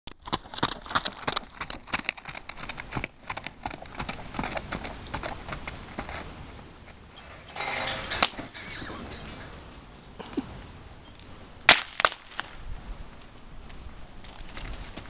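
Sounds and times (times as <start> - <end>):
hoofbeats on hard dirt: 0.1 - 8.2, 13.6 - 15.0
sharp crack: 11.2 - 12.6.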